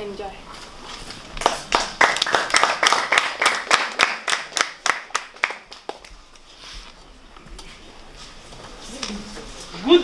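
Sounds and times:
small group clapping: 1.3s - 6.2s.

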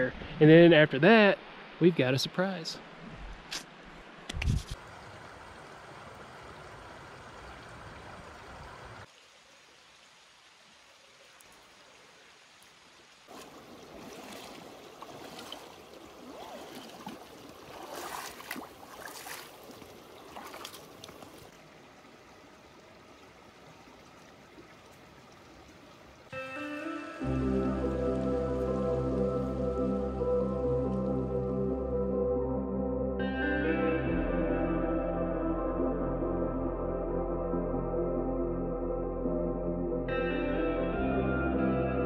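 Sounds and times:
creek trickling over stones: 4.8s - 29.9s.

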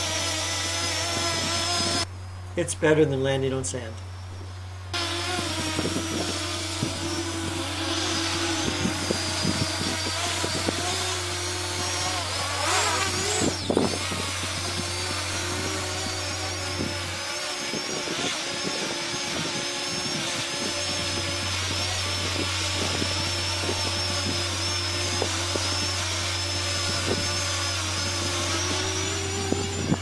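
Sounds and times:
drone propellers whining: 0.0s - 2.5s, 4.0s - 30.0s.

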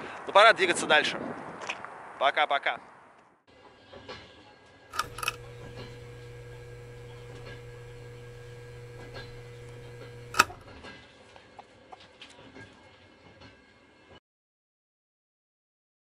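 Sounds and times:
low hum with higher tone: 5.0s - 10.6s
sharp clicks: 5.0s - 10.7s.

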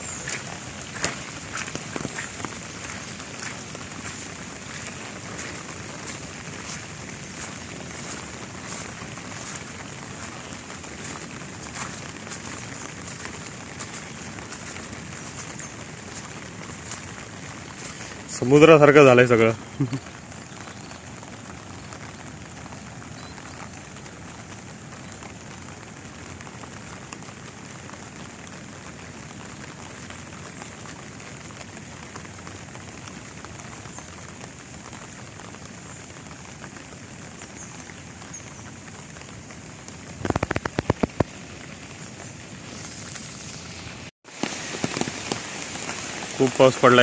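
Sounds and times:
heavy rain falling on water: 0.0s - 47.0s.

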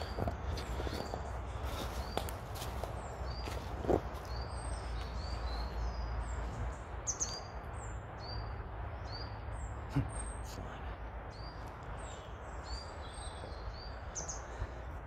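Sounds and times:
footsteps on leaf litter: 0.0s - 5.8s
low rumble of wind: 0.0s - 15.0s
songbird chirping: 0.0s - 15.0s.

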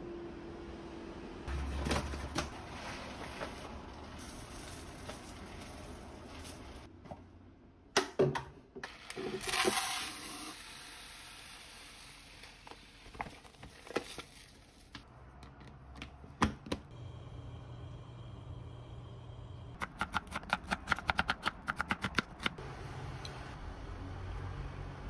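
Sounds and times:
dry rice pouring into container: 2.8s - 6.7s, 9.4s - 12.2s
low steady hum: 16.9s - 19.8s.

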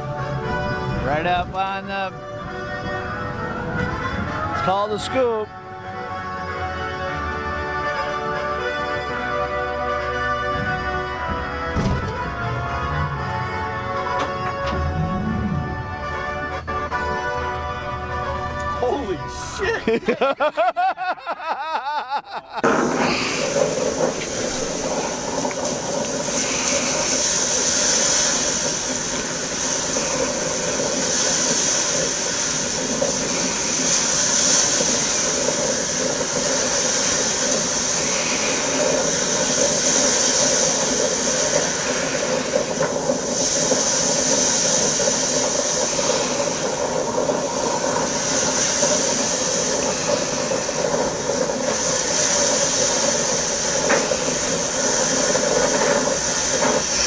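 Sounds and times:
waves washing on beach: 22.6s - 57.0s
wind rushing: 22.6s - 57.0s.

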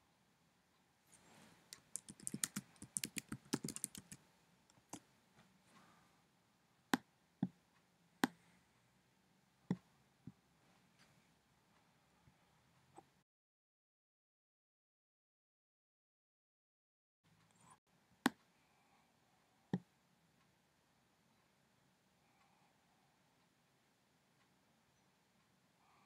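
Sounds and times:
computer keyboard typing: 1.7s - 4.2s.

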